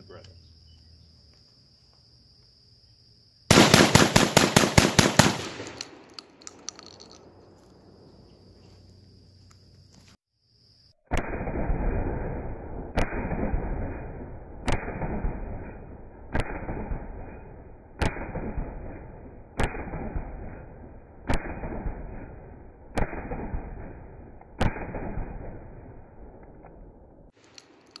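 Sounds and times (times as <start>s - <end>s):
shotgun shots echoing: 3.5s - 7.5s, 11.1s - 26.4s.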